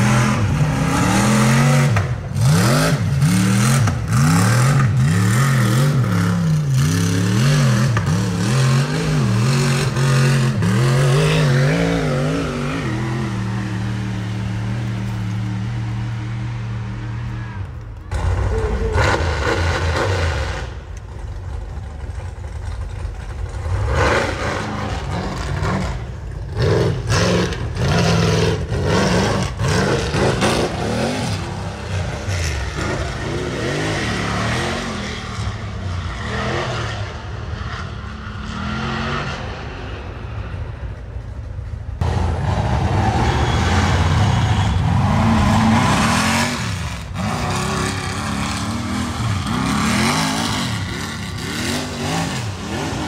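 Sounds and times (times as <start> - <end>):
buggy engines revving: 0.0 - 53.0
clatter: 17.6 - 33.4.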